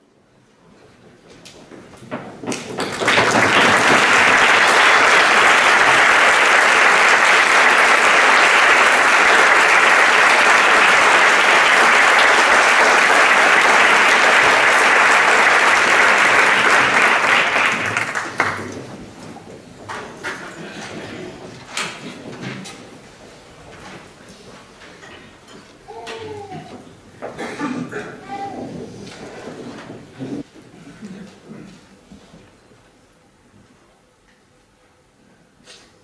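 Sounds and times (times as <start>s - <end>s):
audience applauding: 2.5s - 18.9s.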